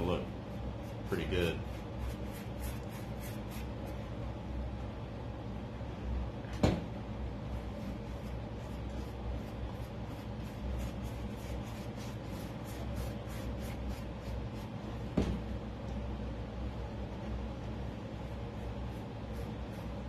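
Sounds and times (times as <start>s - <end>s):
steady low hum: 0.0s - 20.0s
sandpaper scratching strokes: 7.9s - 14.7s.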